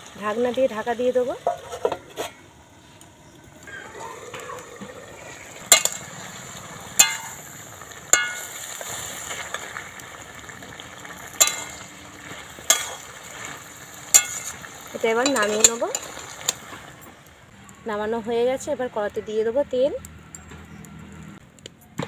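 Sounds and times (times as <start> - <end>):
food sizzling in a wok: 0.0 - 2.4, 3.7 - 17.5.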